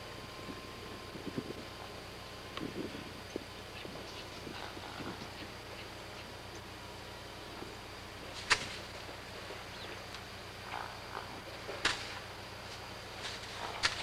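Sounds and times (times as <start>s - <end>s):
steady low hum: 0.0s - 14.0s
loud sharp cracks: 8.4s - 9.0s, 11.8s - 12.3s, 13.2s - 14.0s
horse hoofbeats on dirt: 8.5s - 14.0s.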